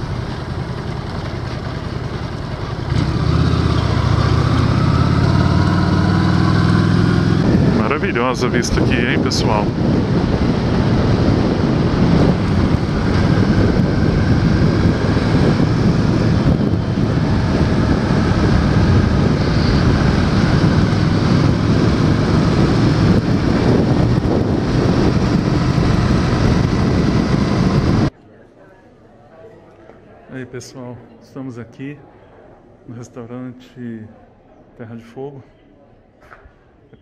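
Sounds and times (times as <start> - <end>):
motorcycle engine running: 0.0 - 28.1
wind rushing over microphone: 3.0 - 28.2.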